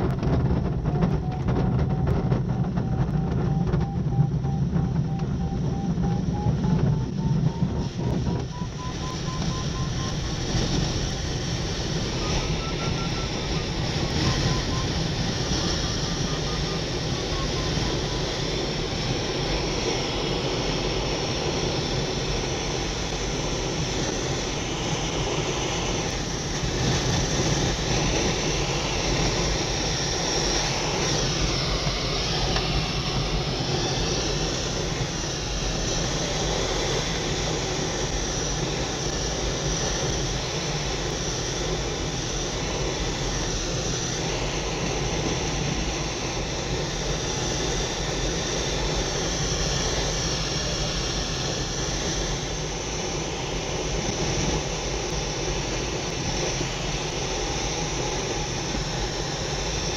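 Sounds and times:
airflow rushing in glider cockpit: 0.0s - 59.9s
plane engine droning: 0.0s - 59.9s
faint wavering whistle: 0.8s - 19.2s.

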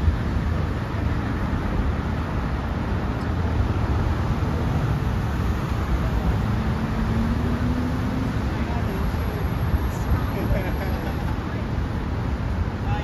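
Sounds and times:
car traffic rumble: 0.0s - 13.0s.

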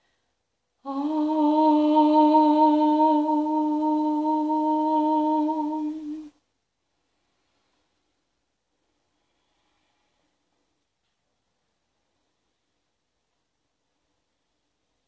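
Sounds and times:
woman singing a long note: 0.8s - 6.4s.

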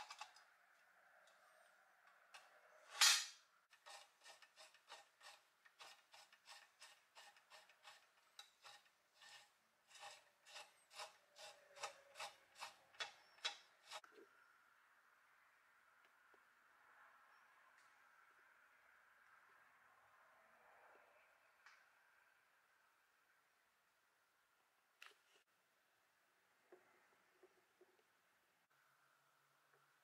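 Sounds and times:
sharp metal clack: 3.0s - 3.4s.

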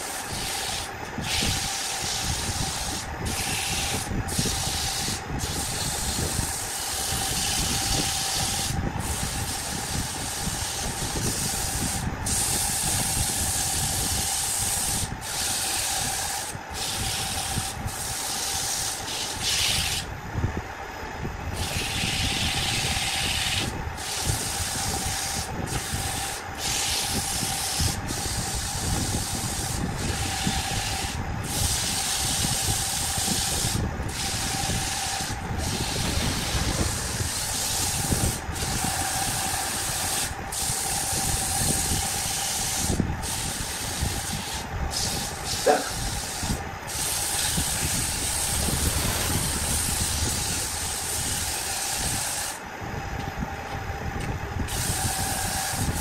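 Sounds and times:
wood lathe running: 0.0s - 20.0s, 21.5s - 52.6s
sandpaper rasping on spinning wood: 0.0s - 20.1s, 21.5s - 52.6s, 54.7s - 56.0s.

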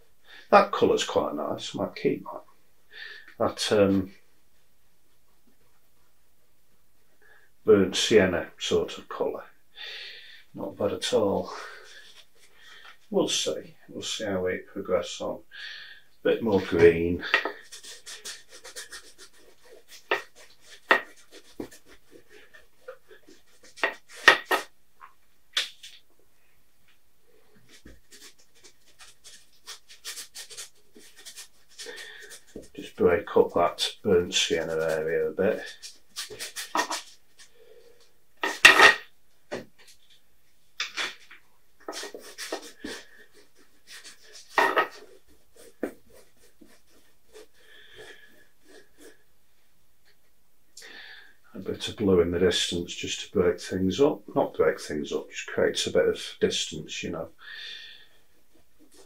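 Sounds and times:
brush strokes on canvas: 16.5s - 24.7s, 27.5s - 37.9s, 41.1s - 49.7s
paint brush taps and scrapes: 16.6s - 26.2s, 26.8s - 49.2s.

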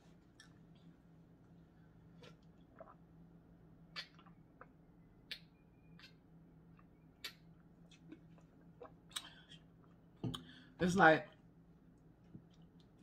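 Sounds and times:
person gulping water: 2.2s - 3.2s.

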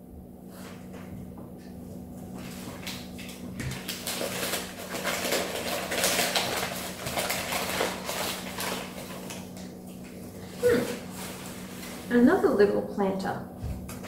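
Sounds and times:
newspaper rustling and crinkling: 2.2s - 12.6s.

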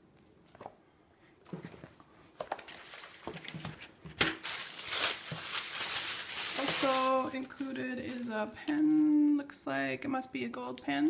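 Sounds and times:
tissue paper rustling: 2.5s - 9.2s.

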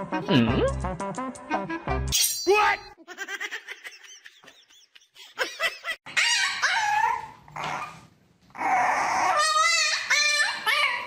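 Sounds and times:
puppy whining and yelping: 6.1s - 11.0s.

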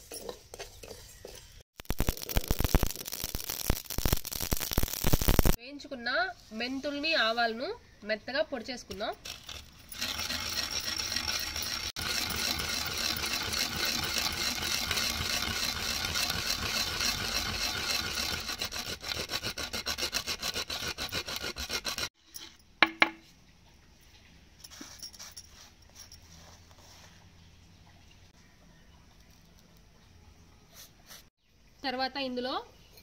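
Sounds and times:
pestle crunching seeds in mortar: 0.0s - 5.6s, 9.2s - 22.1s.

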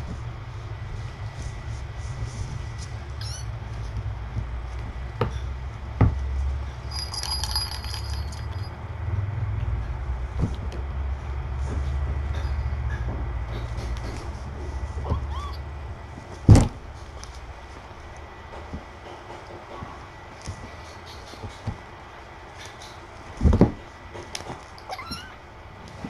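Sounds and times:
steady low hum: 0.0s - 26.0s
faint tinkling: 6.8s - 8.9s.

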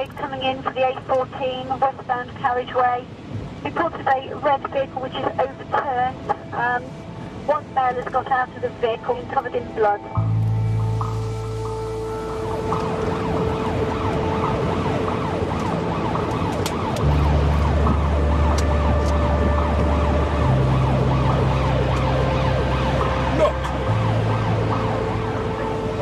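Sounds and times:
low steady drone: 3.7s - 26.0s
police siren yelping: 10.8s - 26.0s.

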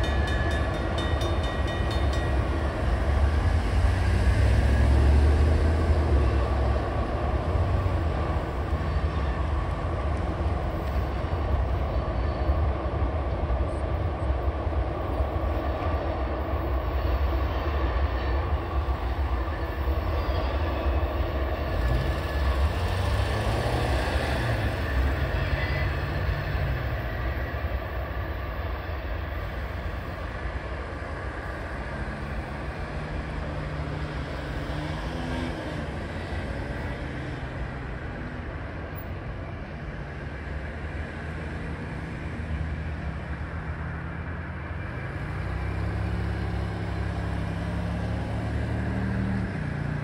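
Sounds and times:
diesel locomotive rumble: 0.0s - 50.0s
cars driving over crossing: 20.9s - 28.2s, 29.6s - 50.0s.

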